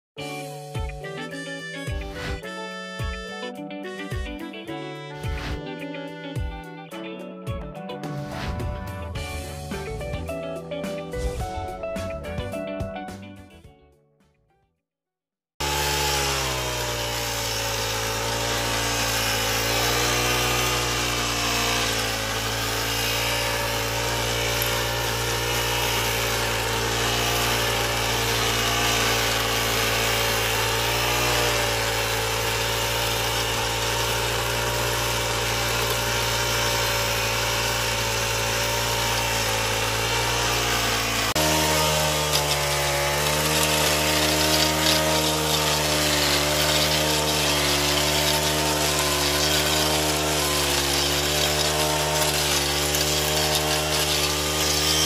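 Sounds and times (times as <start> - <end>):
brush cutter engine running: 15.6 - 55.0.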